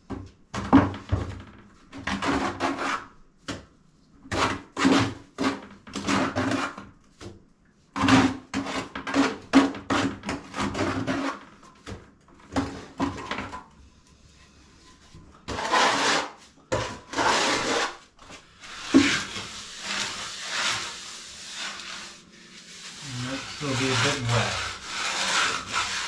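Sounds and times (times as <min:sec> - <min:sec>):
hand float rasping on cement: 0:14.1 - 0:26.0.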